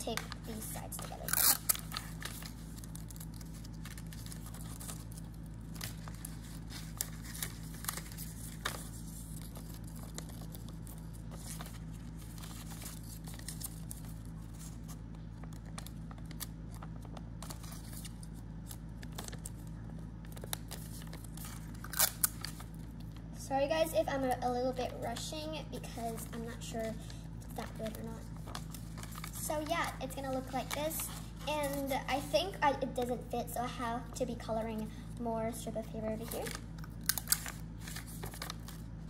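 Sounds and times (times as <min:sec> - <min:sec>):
paper rustling and crinkling: 0:00.0 - 0:23.2, 0:24.8 - 0:33.1, 0:36.2 - 0:39.0
sticky tape being handled: 0:00.0 - 0:23.2
steady low hum: 0:00.0 - 0:39.0.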